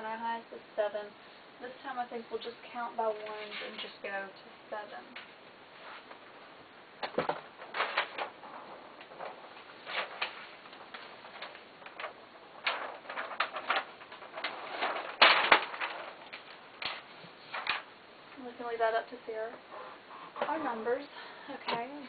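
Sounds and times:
paper sheets rustling and crackling: 3.1s - 4.0s, 7.0s - 18.8s.

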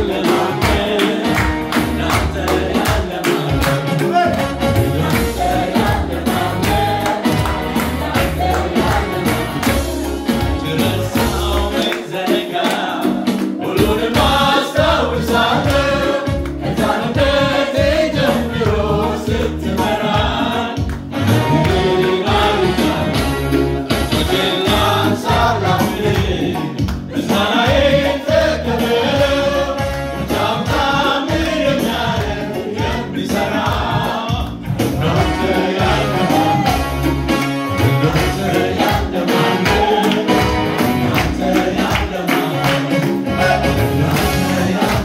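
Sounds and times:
electric keyboard with bass: 0.0s - 45.0s
group singing gospel song: 0.0s - 45.0s
hand claps: 0.6s - 5.3s, 6.6s - 14.4s, 20.8s - 22.2s, 26.1s - 27.1s, 36.4s - 43.2s, 44.1s - 45.0s.

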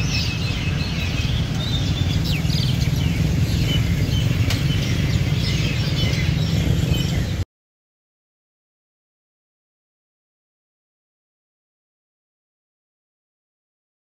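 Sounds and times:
flock of birds twittering: 0.0s - 7.4s
low street rumble: 0.0s - 7.4s.

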